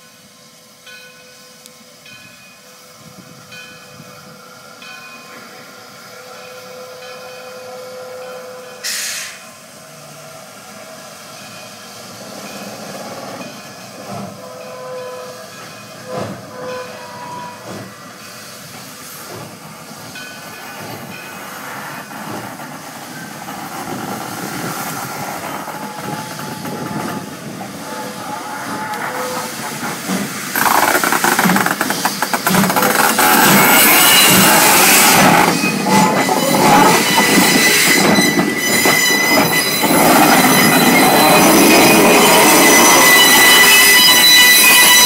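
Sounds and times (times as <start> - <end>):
steam locomotive hissing: 0.0 - 45.0
loud steam blast: 8.8 - 10.2.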